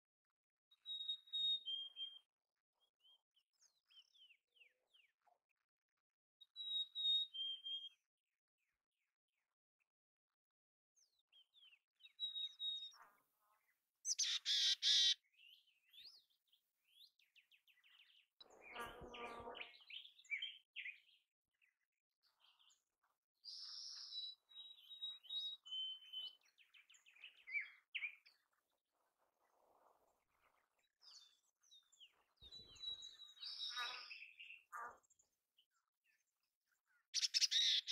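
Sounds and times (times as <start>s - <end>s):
chickadees calling: 14.1s - 15.2s, 37.2s - 37.9s
raspy bird calls: 14.1s - 15.2s, 37.2s - 37.9s.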